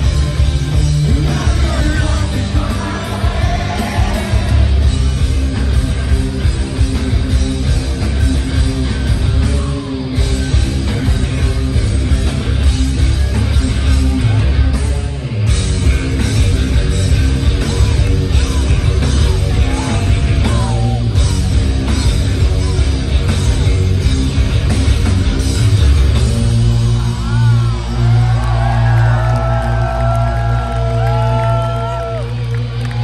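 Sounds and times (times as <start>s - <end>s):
bass guitar: 0.0s - 33.0s
distorted electric guitars: 0.0s - 33.0s
drums: 0.0s - 33.0s.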